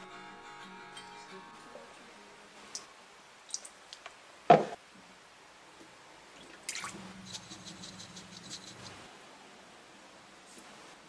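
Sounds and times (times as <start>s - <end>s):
liquid trickling and dripping: 3.5s - 4.1s, 6.4s - 7.0s
liquid splash: 6.4s - 7.0s.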